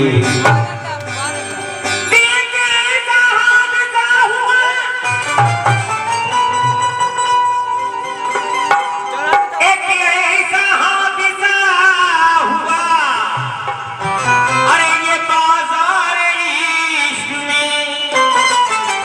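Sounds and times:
keyboard: 0:00.0 - 0:19.0
hand drum: 0:00.2 - 0:01.7, 0:05.2 - 0:09.6
man singing melodic phrases: 0:14.7 - 0:18.7.

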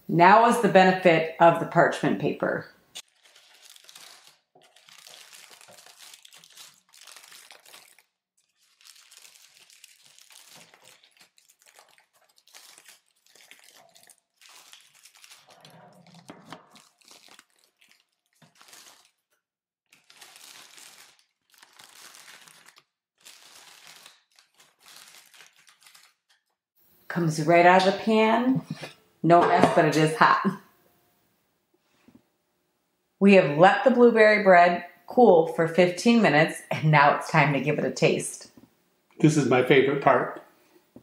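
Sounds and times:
parchment paper crinkling: 0:03.0 - 0:26.6.

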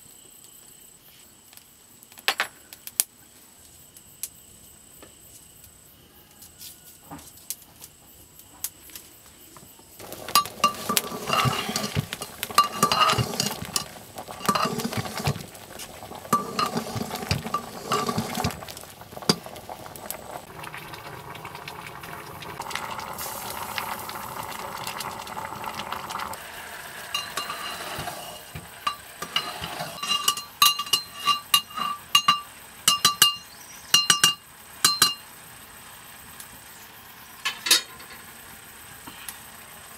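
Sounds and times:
metal ladle clinking in pot: 0:10.1 - 0:15.4, 0:16.2 - 0:18.6, 0:27.1 - 0:35.2.

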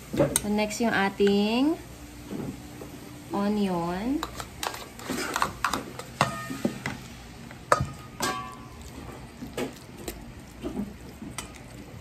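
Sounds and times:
spoon knocking and scraping bowl: 0:04.2 - 0:07.0, 0:07.7 - 0:09.8
metal spoon stirring in steel bowl: 0:04.2 - 0:12.0.

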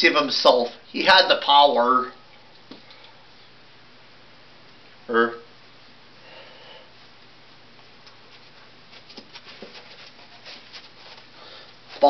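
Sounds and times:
steady room hiss: 0:00.0 - 0:12.0
soft rustles: 0:07.0 - 0:12.0.

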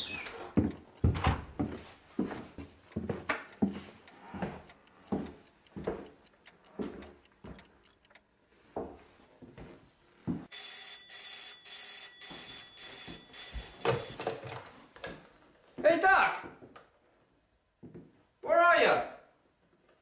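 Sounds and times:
clocks ticking: 0:00.0 - 0:08.3
footsteps on wooden floor: 0:00.5 - 0:06.1, 0:06.8 - 0:07.6
telephone ringing: 0:10.5 - 0:14.2.

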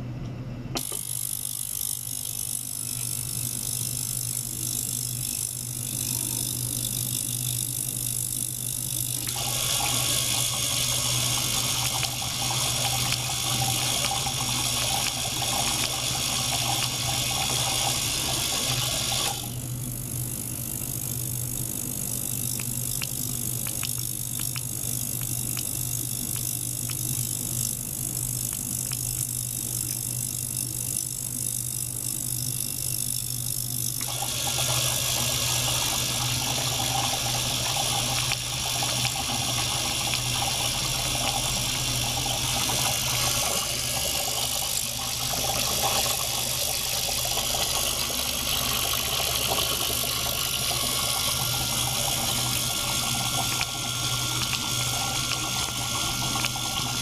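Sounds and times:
steady low hum: 0:00.0 - 0:57.0
water churning in tank: 0:09.2 - 0:19.6, 0:34.1 - 0:57.0.

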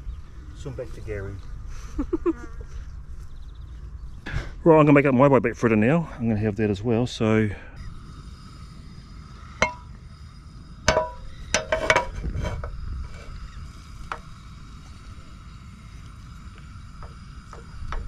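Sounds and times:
stove hiss: 0:04.3 - 0:18.0.

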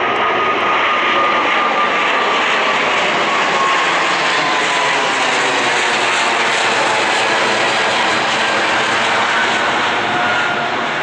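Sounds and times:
jet engines roaring overhead: 0:00.0 - 0:11.0.

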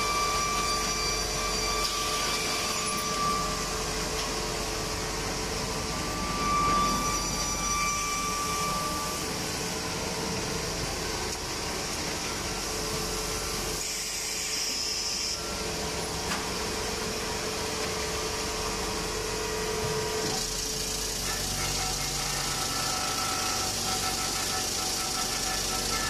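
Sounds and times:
machine humming: 0:00.0 - 0:13.9.

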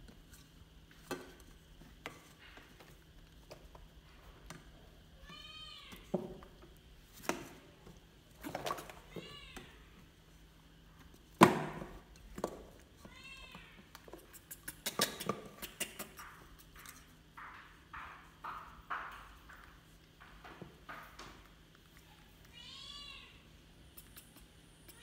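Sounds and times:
knocks and taps on plastic chair: 0:05.3 - 0:06.6, 0:14.9 - 0:21.6
baby monkey meow-like calls: 0:22.5 - 0:23.4.

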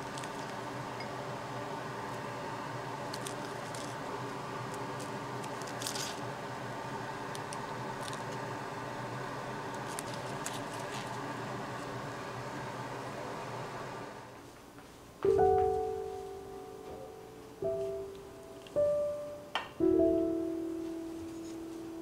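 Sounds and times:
steady background hum: 0:00.0 - 0:22.0
food rustling on ceramic plate: 0:04.9 - 0:06.2, 0:09.8 - 0:11.2.

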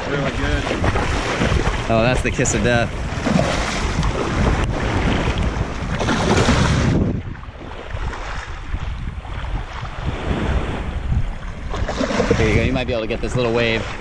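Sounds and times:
surf washing: 0:00.0 - 0:14.0
wind rumbling on microphone: 0:00.0 - 0:14.0.

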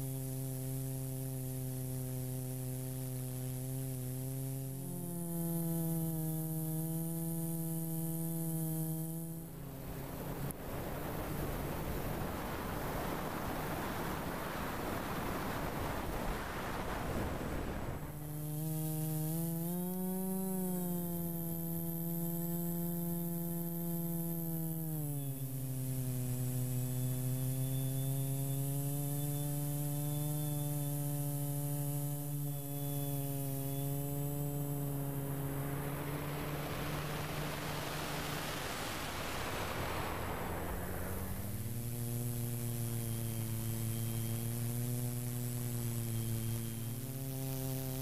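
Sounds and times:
drone motors humming: 0:00.0 - 0:48.0
wind noise on microphone: 0:10.2 - 0:18.6.

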